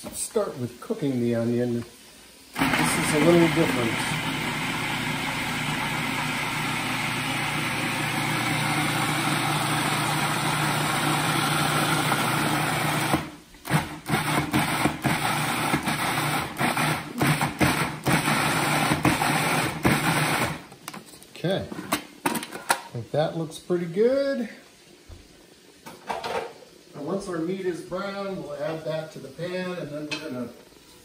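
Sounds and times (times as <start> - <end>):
food processor motor chopping: 2.6 - 20.6.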